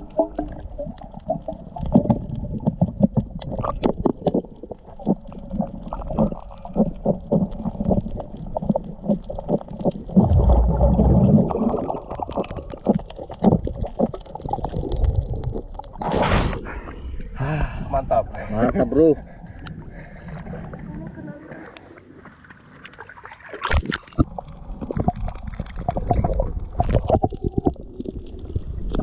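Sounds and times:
underwater clicks and knocks: 0.0s - 16.0s
low rumble: 14.8s - 21.6s
muffled underwater noise: 16.0s - 22.5s
sharp water splash: 23.0s - 24.3s.

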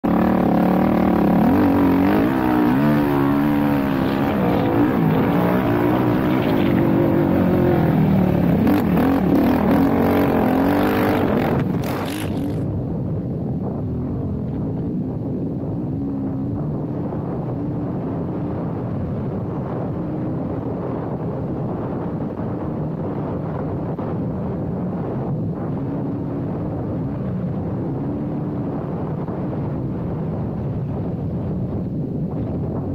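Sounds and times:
quad engine revving: 0.0s - 12.7s.

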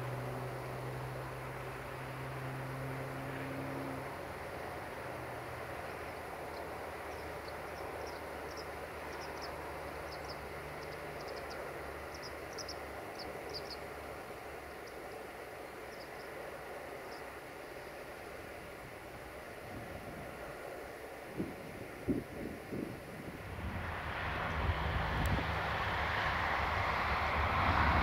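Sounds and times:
birds chirping: 5.7s - 18.4s.

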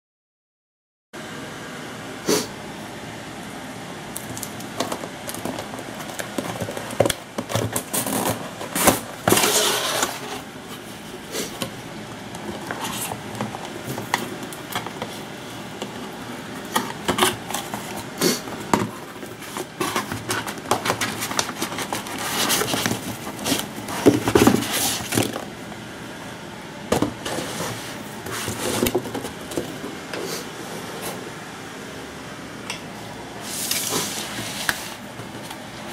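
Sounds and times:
cardboard scraping and rustling: 4.7s - 11.8s, 12.4s - 25.5s, 27.0s - 31.2s, 33.4s - 35.9s.

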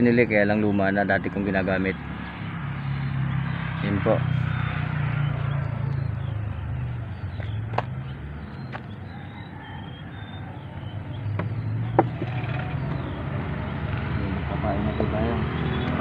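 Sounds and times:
low engine drone: 1.3s - 9.0s.

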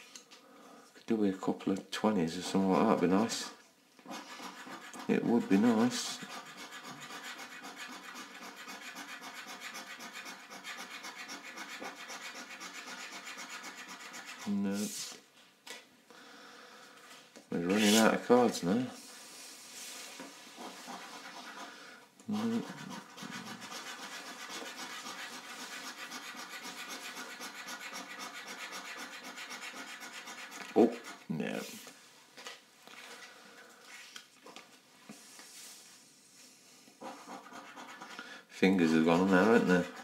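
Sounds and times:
coin scraping a scratchcard: 6.2s - 14.5s, 22.3s - 31.2s.

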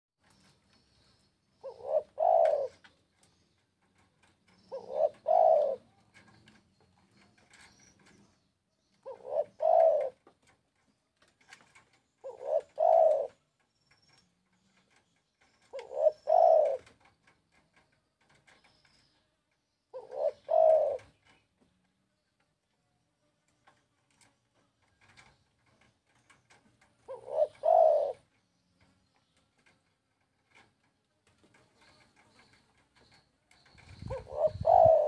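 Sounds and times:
dove cooing: 1.5s - 3.3s, 3.9s - 8.1s, 9.0s - 10.4s, 11.8s - 13.4s, 15.6s - 17.1s, 19.9s - 21.4s, 25.0s - 28.4s, 31.5s - 35.0s.

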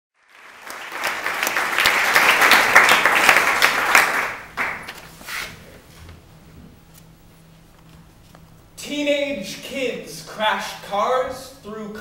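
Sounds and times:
audience applauding: 0.2s - 4.9s.

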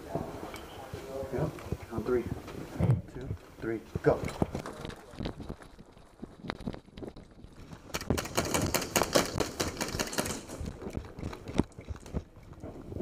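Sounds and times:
airsoft guns firing rapidly: 7.9s - 10.6s.

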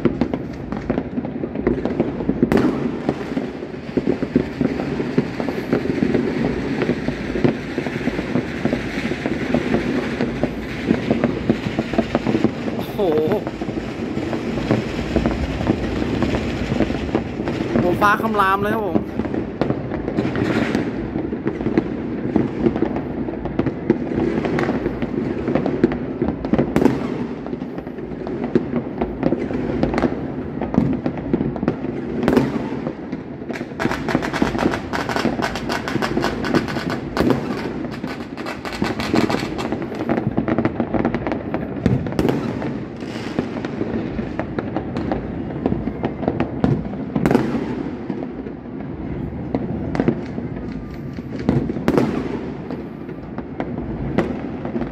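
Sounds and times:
distant fireworks booms: 0.0s - 54.9s
fireworks crackling: 0.0s - 54.9s
sharp fireworks bangs: 0.0s - 54.9s.

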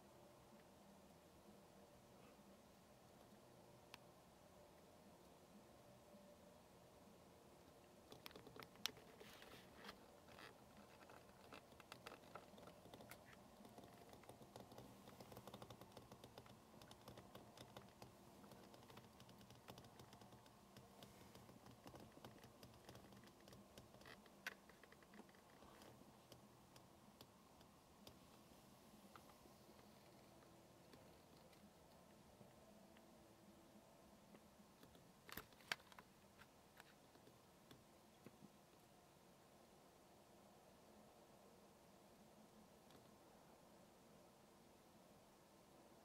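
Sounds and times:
faint irregular clicks and taps: 7.8s - 33.1s, 34.3s - 38.9s, 42.8s - 43.2s.

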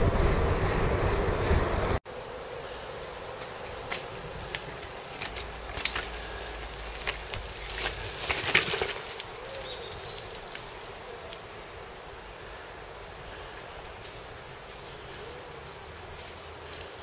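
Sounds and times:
mountain bike rattling over trail: 3.8s - 11.1s.

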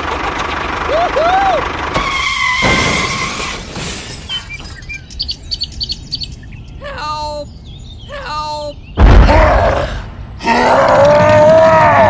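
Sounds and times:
toy tractor crashing: 1.9s - 4.9s
high bird chirps: 4.2s - 9.0s.

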